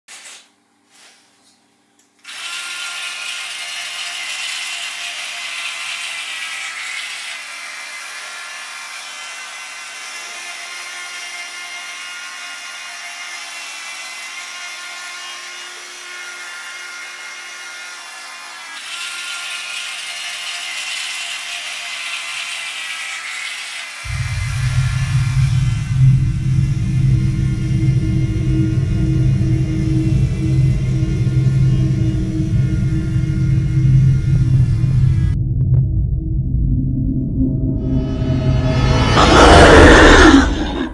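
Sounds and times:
electric toothbrush buzzing: 2.2s - 35.4s
loud deep rumble: 24.1s - 40.9s.

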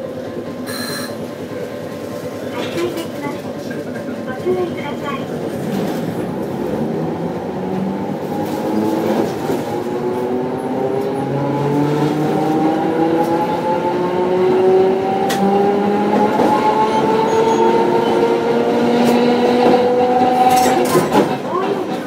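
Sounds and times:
tram motor whine rising: 0.0s - 2.2s.

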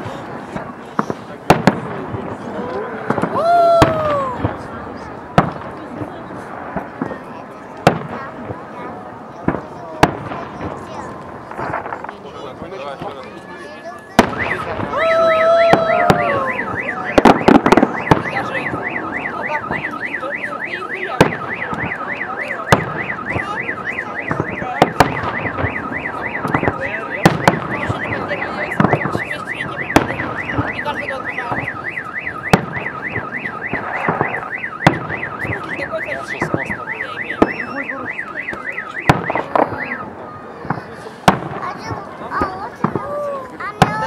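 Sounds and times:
car alarm wailing: 12.9s - 40.8s.

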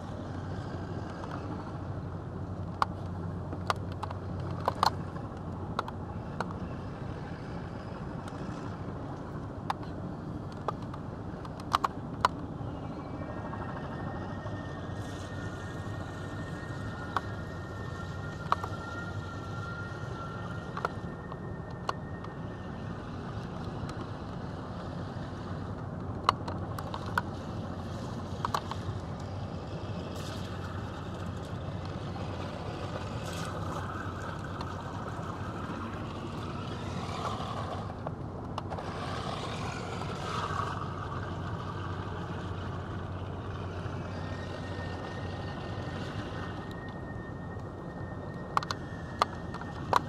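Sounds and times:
vehicle cabin rumble and hiss: 0.0s - 50.0s
toy car motor whirring: 13.3s - 50.0s.

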